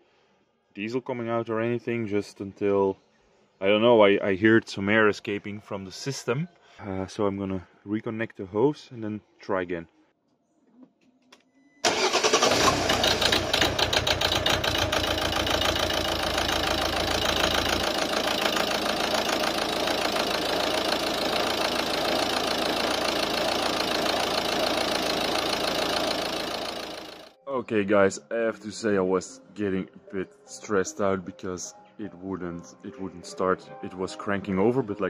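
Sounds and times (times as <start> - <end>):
diesel engine starting and idling: 11.8 - 27.4.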